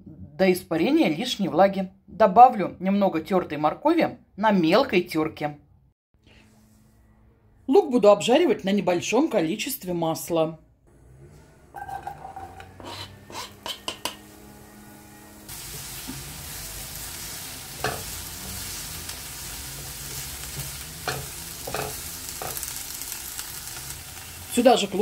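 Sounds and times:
onion sizzling in a pan: 0:11.8 - 0:25.0
spatula knocking against pan: 0:13.6 - 0:14.2.

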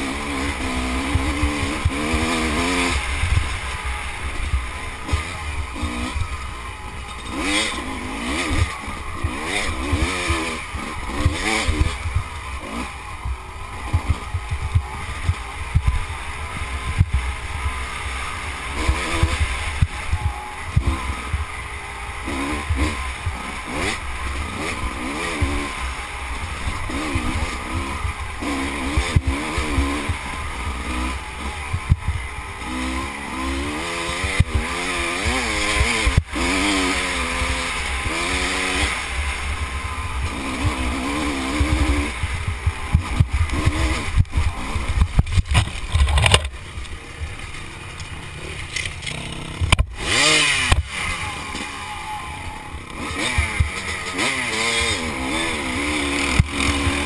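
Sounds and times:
motorcycle engine revving: 0:00.0 - 0:57.0
knocks and jolts from rough ground: 0:42.5 - 0:46.6.

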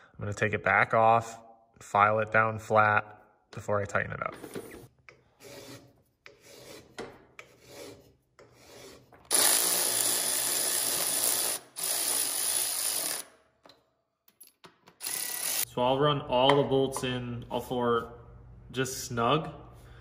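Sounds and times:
hand file rasping on metal: 0:05.1 - 0:09.2
power ratchet running: 0:09.3 - 0:13.3, 0:15.0 - 0:15.6.

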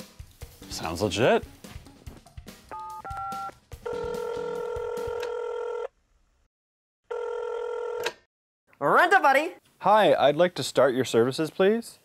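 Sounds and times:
phone ringing tone: 0:02.7 - 0:05.9, 0:07.1 - 0:08.1.

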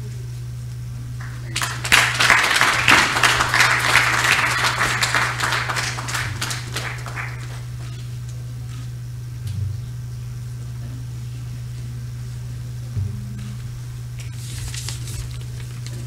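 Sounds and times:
steady low hum: 0:00.0 - 0:16.0
crowd applauding: 0:01.2 - 0:07.9.

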